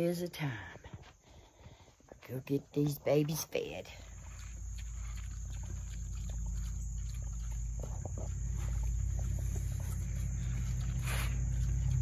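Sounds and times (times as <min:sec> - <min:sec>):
pig snuffling: 0:00.6 - 0:12.0
pigs chewing grain: 0:00.7 - 0:12.0
insect chirring: 0:03.9 - 0:12.0
low hum: 0:04.0 - 0:12.0.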